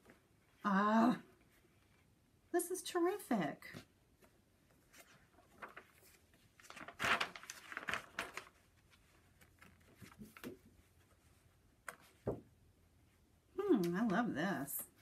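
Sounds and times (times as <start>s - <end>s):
paper pages rustling: 3.7s - 12.4s.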